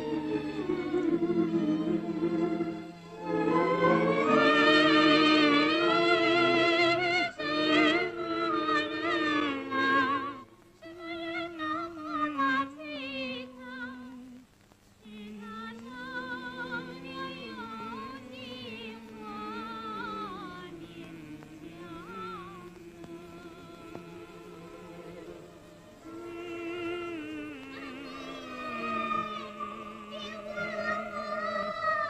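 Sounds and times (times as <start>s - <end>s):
person singing classical style: 0.0s - 32.0s
quiet accompaniment: 0.0s - 32.0s.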